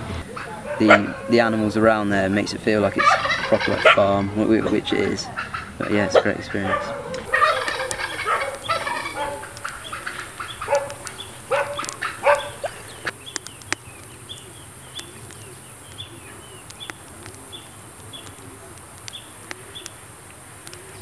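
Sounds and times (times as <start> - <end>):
steady high hiss: 0.0 - 21.0
fowl honking and squawking: 0.2 - 2.0, 2.7 - 13.1
small high chirps: 7.2 - 20.1.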